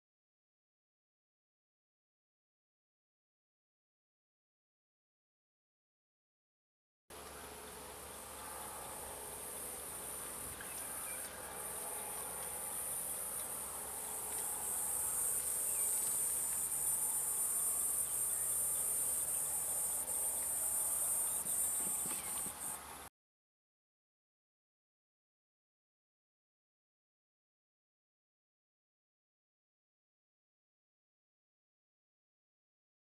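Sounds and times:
insects chirring: 0:07.9 - 0:22.8.

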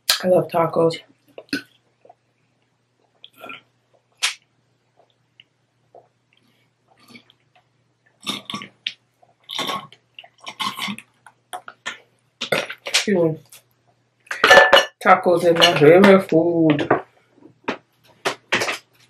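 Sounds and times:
person swallowing gulps: 0:05.9 - 0:07.6.

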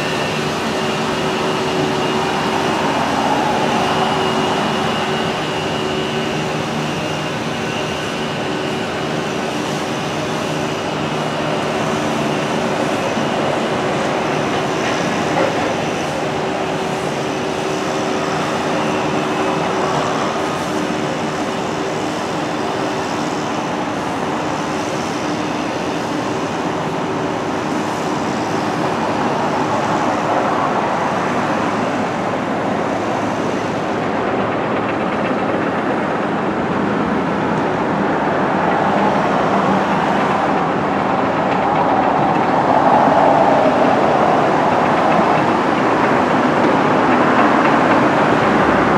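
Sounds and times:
heavy machinery din: 0:00.0 - 0:06.8
traffic: 0:00.0 - 0:48.9.

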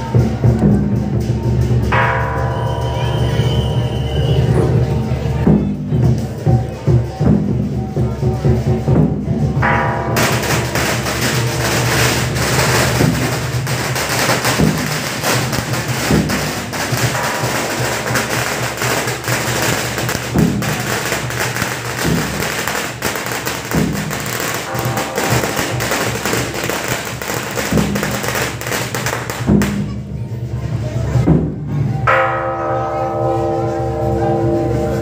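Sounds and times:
deep drum struck: 0:04.7 - 0:30.2, 0:31.2 - 0:32.1.

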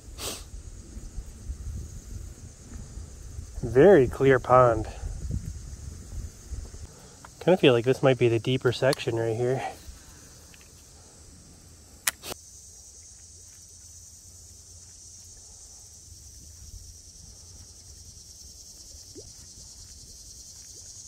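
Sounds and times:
high-pitched insect chorus: 0:00.0 - 0:21.0
sharp clicks: 0:12.0 - 0:12.4.

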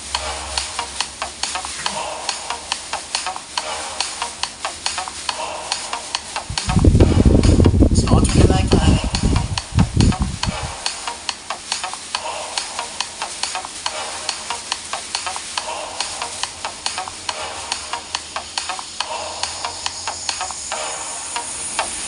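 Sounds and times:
plastic bag skirt rustling: 0:00.2 - 0:20.2
deep low sound: 0:06.5 - 0:10.6.

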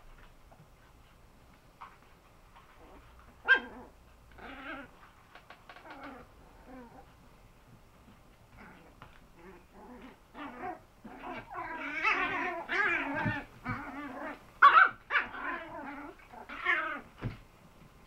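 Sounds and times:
puppies growling and yipping: 0:02.6 - 0:07.3, 0:08.5 - 0:17.4.

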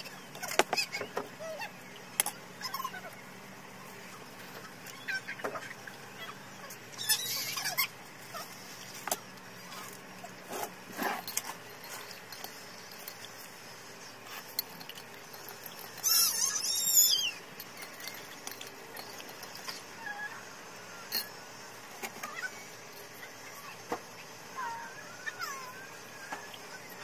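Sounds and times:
animal squealing: 0:04.9 - 0:08.5, 0:15.9 - 0:18.2, 0:24.6 - 0:26.1.

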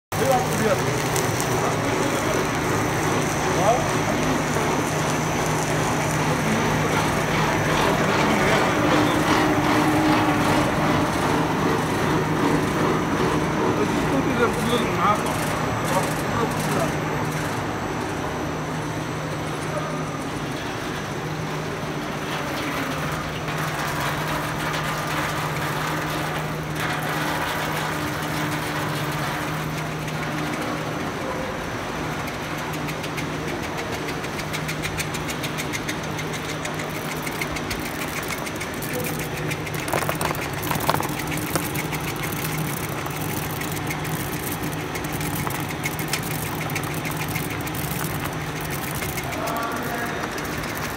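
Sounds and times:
machinery humming: 0:00.1 - 0:50.9
fast light ticking: 0:32.8 - 0:50.9.

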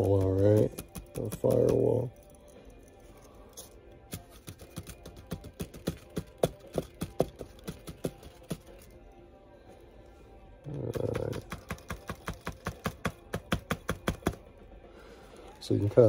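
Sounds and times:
tapping on plastic model: 0:00.0 - 0:01.9, 0:04.1 - 0:08.7, 0:10.9 - 0:14.4.

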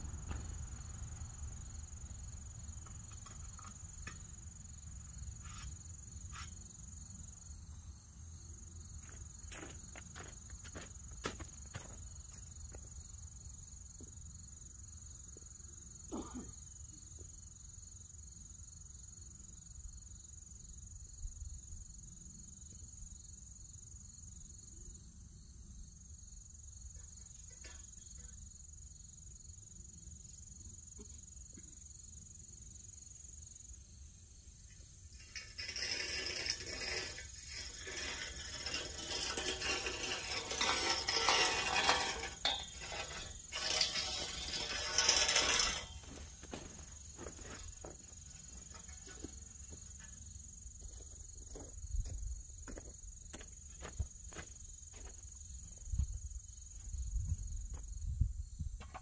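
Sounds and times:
loud rough noise: 0:35.2 - 0:46.7.

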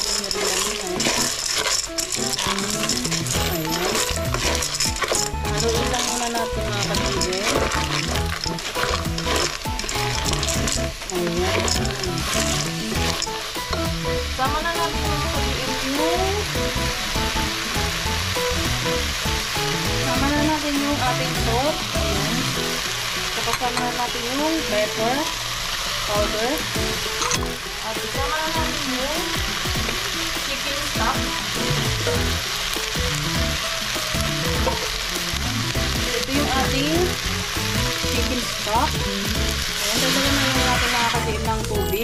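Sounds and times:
wooden spatula stirring: 0:00.0 - 0:14.8
food sizzling in a pot: 0:00.0 - 0:42.0.

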